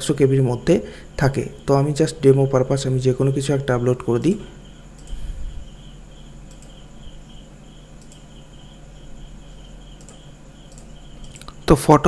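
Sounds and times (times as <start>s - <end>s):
cricket chirping: 0.0s - 12.0s
low steady hum: 0.0s - 12.0s
faint clicks: 5.0s - 5.2s, 6.4s - 6.8s, 8.0s - 8.3s, 9.9s - 11.6s.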